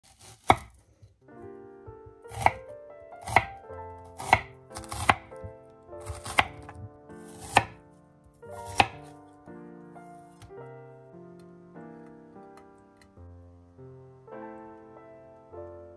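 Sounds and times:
knife cutting onion on wooden board: 0:00.0 - 0:00.8, 0:02.3 - 0:07.8, 0:08.5 - 0:09.2
soft background music: 0:00.1 - 0:15.9.

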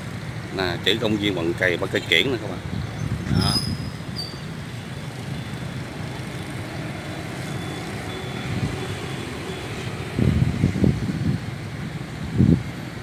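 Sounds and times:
street traffic: 0:00.0 - 0:13.0.

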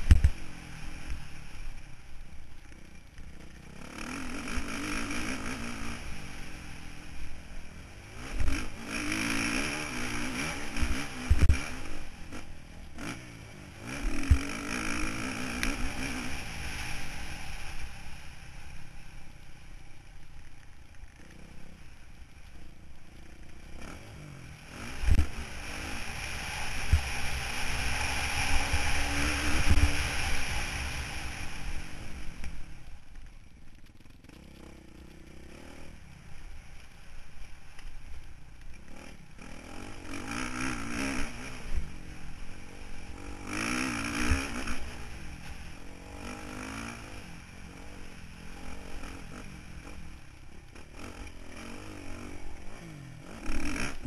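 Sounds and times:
constant rush of noise: 0:00.0 - 0:54.0
motorbike engine revving: 0:02.7 - 0:07.2, 0:07.9 - 0:17.9, 0:23.1 - 0:32.8, 0:38.8 - 0:54.0.

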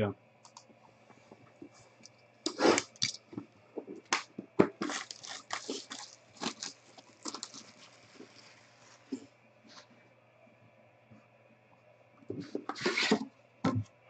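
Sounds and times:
plastic wrap crinkling and ripping: 0:02.5 - 0:03.2, 0:04.0 - 0:09.2.

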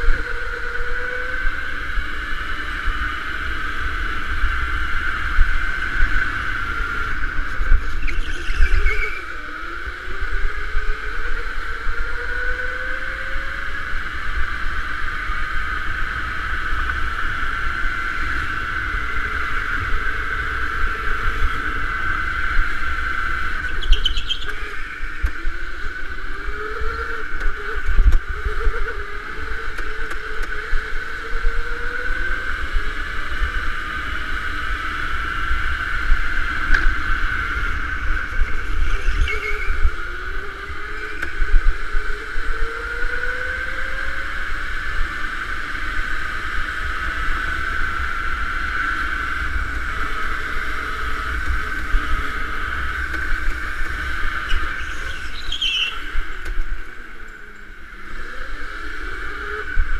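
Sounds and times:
low rumble of vibration: 0:00.0 - 0:59.9
wind on camera: 0:00.0 - 0:59.9
high-pitched squeals: 0:06.9 - 0:13.4, 0:37.6 - 0:44.0
electric motor whining: 0:47.4 - 0:59.9.

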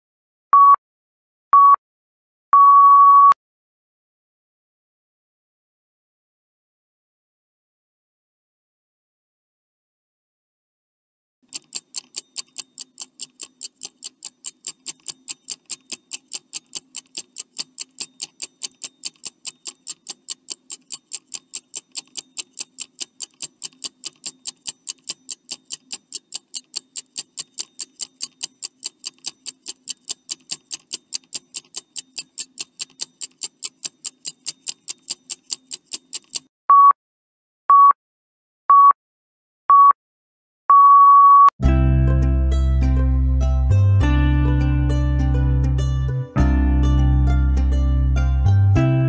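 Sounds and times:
fast clock ticking: 0:11.4 - 0:36.5.

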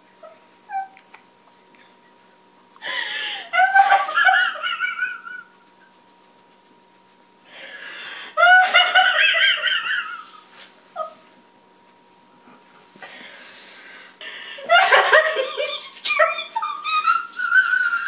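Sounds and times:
woman laughing high-pitched: 0:03.3 - 0:05.6, 0:08.4 - 0:11.2, 0:14.6 - 0:18.0.

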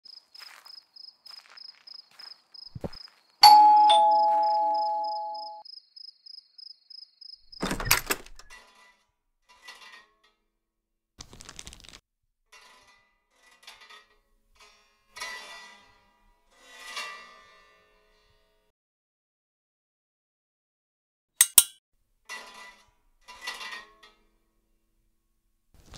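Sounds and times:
two-tone doorbell chime: 0:03.4 - 0:05.6.

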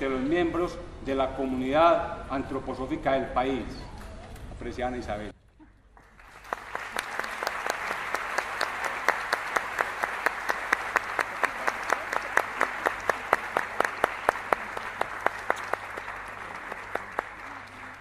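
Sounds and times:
audience applauding: 0:05.9 - 0:18.0.

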